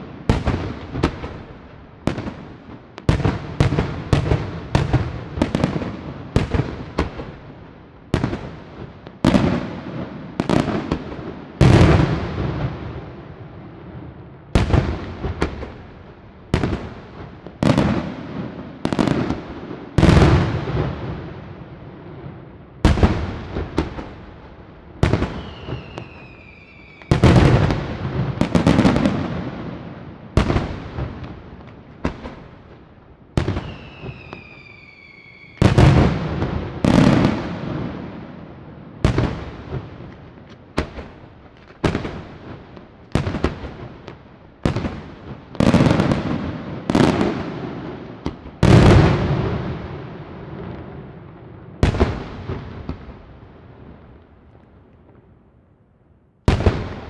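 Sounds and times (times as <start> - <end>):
falling firework whistle: 25.0 - 27.4, 33.4 - 35.9.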